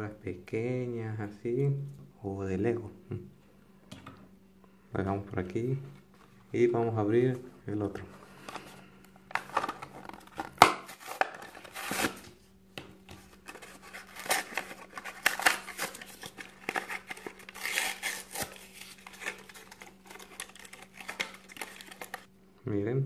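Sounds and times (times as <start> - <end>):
cardboard ripping: 10.6 - 12.3, 13.4 - 22.3
plastic blister crinkling: 13.2 - 22.3.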